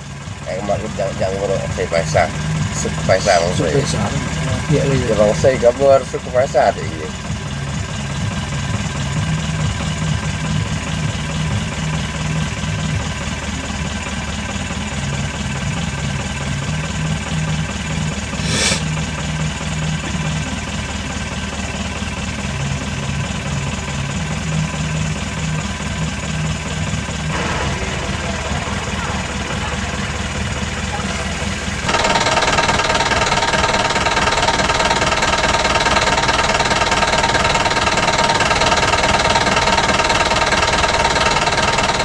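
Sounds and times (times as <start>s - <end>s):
vehicle engine idling: 0.0s - 42.0s
brief sharp noise: 18.4s - 18.8s.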